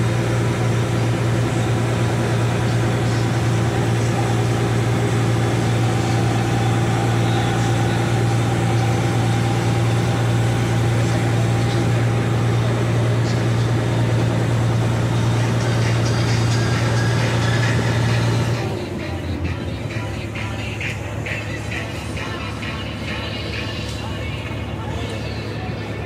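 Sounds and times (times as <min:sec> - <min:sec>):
diesel engine low drone: 0:00.0 - 0:26.0.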